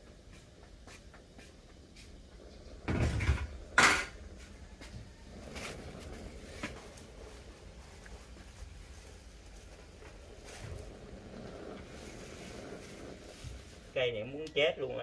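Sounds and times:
plastic bag rustling: 0:05.2 - 0:14.0.

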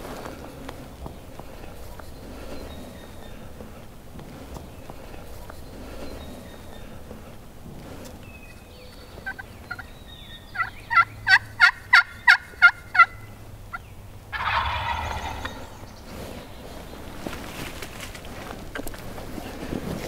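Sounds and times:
turkey gobbling: 0:09.2 - 0:09.9, 0:10.5 - 0:13.4, 0:14.3 - 0:16.0
turkey friction call yelps: 0:10.6 - 0:13.2, 0:14.3 - 0:15.9.

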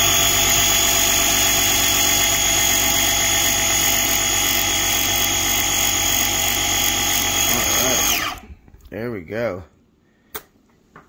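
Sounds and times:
air compressor whining: 0:00.0 - 0:08.8.

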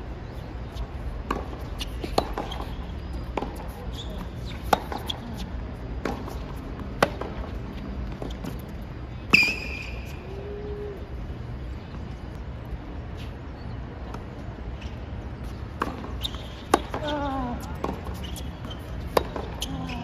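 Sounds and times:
tennis racquets hitting ball: 0:01.2 - 0:08.7, 0:15.7 - 0:19.7
shoe squeal on court: 0:03.6 - 0:05.2, 0:09.3 - 0:10.2, 0:16.2 - 0:16.7, 0:18.1 - 0:20.0.

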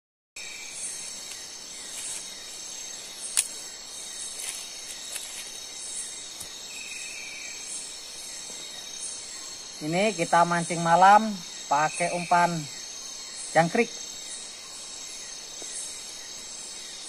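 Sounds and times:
insect trills: 0:00.4 - 0:17.0
sharp click: 0:03.3 - 0:03.6.

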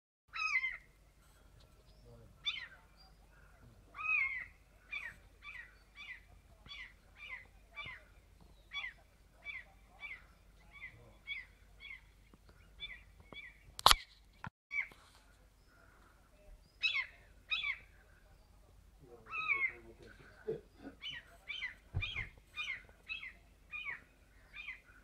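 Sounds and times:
sharp click: 0:13.8 - 0:14.1
gull calling: 0:19.2 - 0:24.0.

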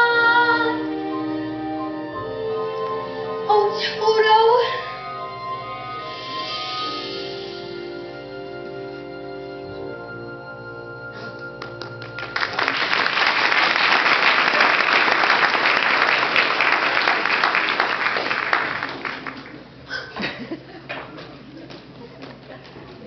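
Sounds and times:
musical accompaniment: 0:00.0 - 0:13.6
audience applause: 0:11.4 - 0:19.7.

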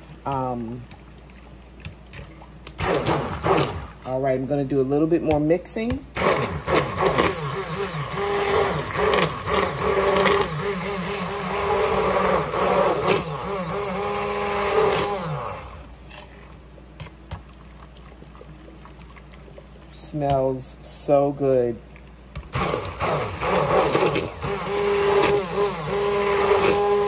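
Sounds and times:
immersion blender running: 0:02.8 - 0:04.0, 0:06.2 - 0:15.9, 0:22.5 - 0:27.0.

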